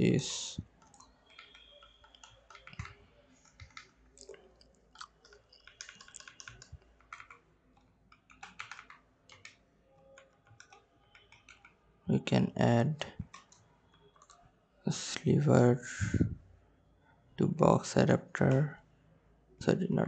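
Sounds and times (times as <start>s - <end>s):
typing on computer keyboard: 0.8s - 11.8s, 13.2s - 14.4s.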